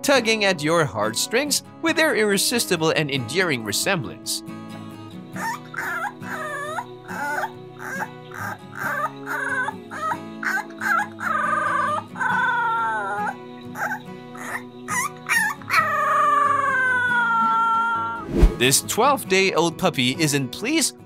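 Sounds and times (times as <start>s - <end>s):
puppy howling and yelping: 5.4s - 18.2s.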